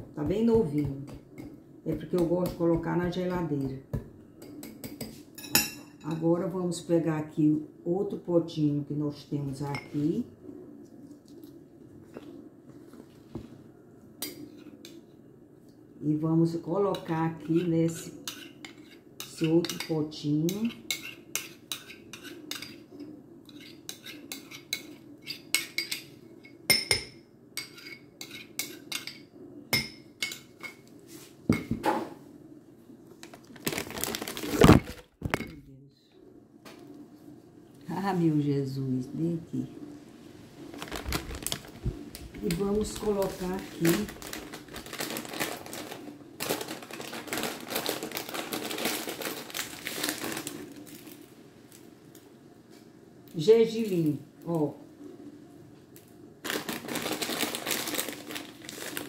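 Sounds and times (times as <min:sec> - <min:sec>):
metal spoon scraping ceramic bowl: 0:20.5 - 0:26.0
plastic bag crinkling: 0:33.2 - 0:35.5, 0:40.7 - 0:51.3, 0:56.4 - 0:59.0.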